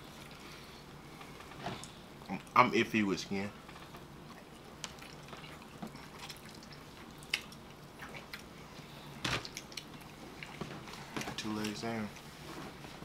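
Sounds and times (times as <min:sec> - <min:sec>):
wet chewing: 0:03.7 - 0:12.3.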